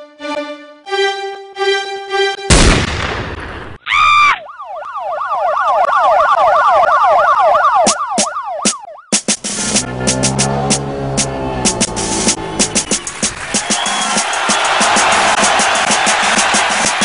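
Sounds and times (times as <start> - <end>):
siren wailing up and down: 3.9 - 13.1
held musical notes: 9.2 - 14.6
horn-like blast: 9.4 - 15.4.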